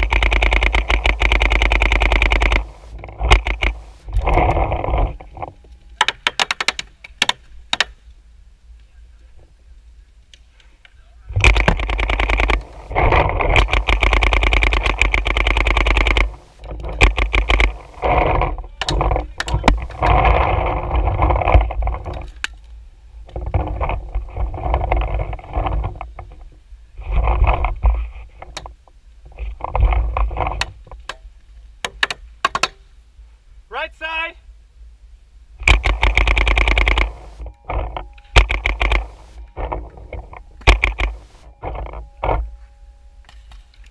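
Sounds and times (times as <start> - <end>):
paintball markers firing: 0.0 - 3.9, 6.0 - 8.0, 11.4 - 18.1, 31.8 - 32.8, 35.6 - 37.4, 38.3 - 39.2, 40.6 - 41.3.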